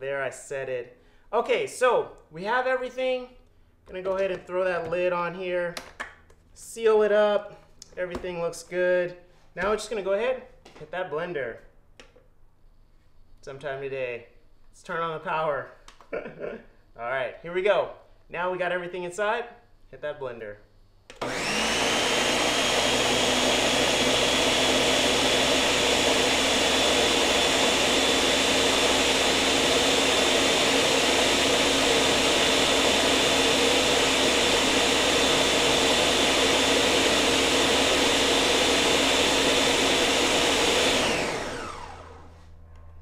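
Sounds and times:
blender motor whining: 0:21.1 - 0:42.9.

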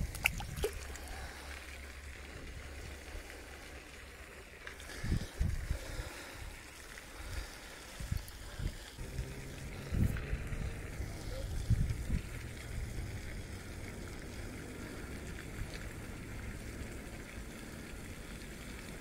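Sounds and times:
wind rumble on microphone: 0:04.9 - 0:06.6, 0:07.9 - 0:14.5.

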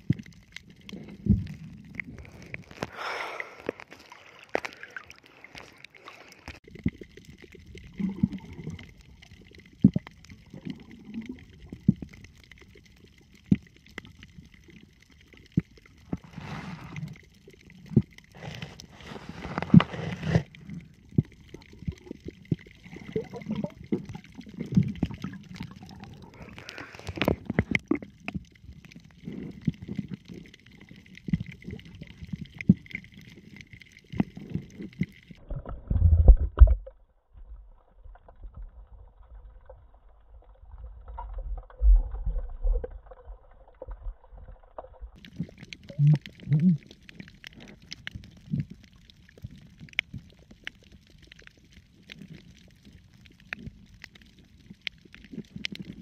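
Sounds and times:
clicks and knocks underwater: 0:00.0 - 0:56.0
muffled underwater gurgling: 0:45.2 - 0:48.8.

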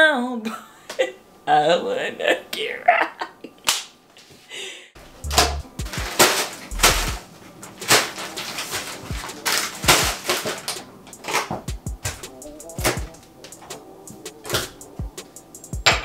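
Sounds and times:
instrumental hip-hop beat: 0:05.1 - 0:07.2, 0:09.0 - 0:16.0
deep bass notes: 0:05.2 - 0:05.9, 0:06.7 - 0:07.2
plastic bags rustling: 0:05.3 - 0:11.7.

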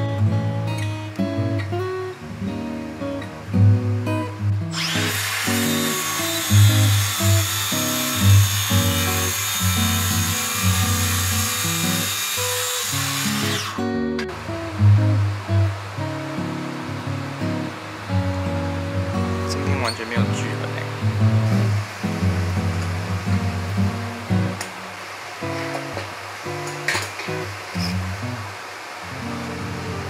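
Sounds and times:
acoustic guitar music: 0:00.0 - 0:30.0
circular saw cutting: 0:04.7 - 0:14.0.

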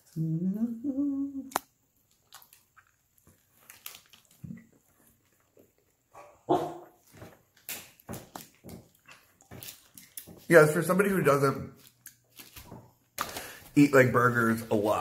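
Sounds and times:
man humming with full mouth: 0:00.1 - 0:01.6
faint chewing: 0:01.5 - 0:10.6.

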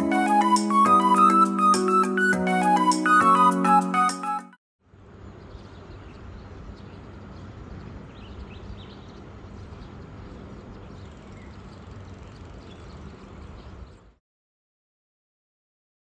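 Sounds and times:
road traffic rumbling: 0:04.9 - 0:14.0
small birds chirping: 0:05.0 - 0:14.2.

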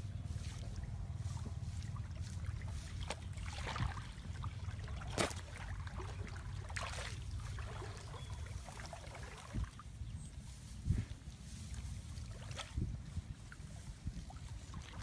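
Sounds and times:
rustles: 0:00.0 - 0:03.6, 0:08.4 - 0:14.8
steady low rumble: 0:00.0 - 0:15.0
shallow water sloshing and splashing: 0:00.2 - 0:10.0, 0:11.5 - 0:15.0.

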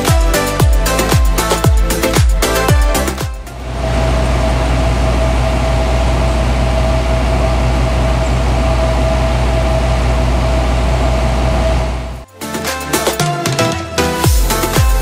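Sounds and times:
air compressor humming with whine: 0:03.4 - 0:12.2.

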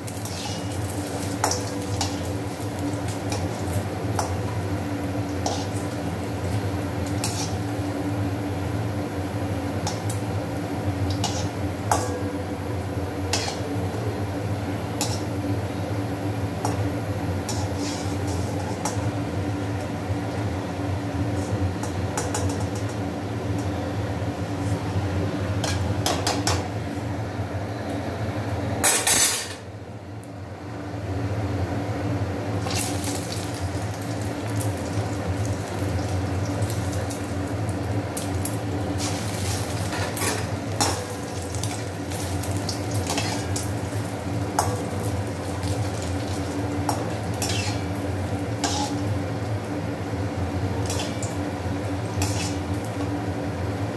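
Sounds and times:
deep-frying sizzle in oil: 0:00.0 - 0:23.7, 0:32.5 - 0:53.9
skimmer clinking and scraping pan: 0:48.6 - 0:49.0.

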